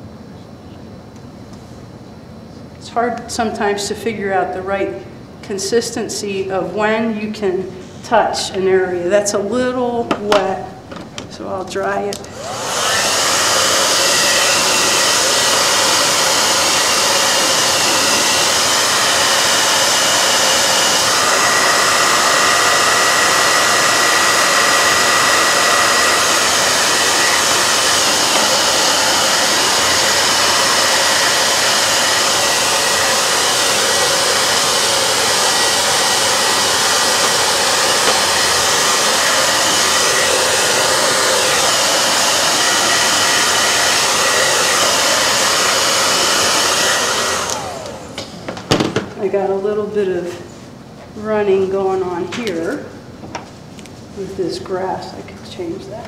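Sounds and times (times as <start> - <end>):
hair dryer running: 10.1 - 49.9.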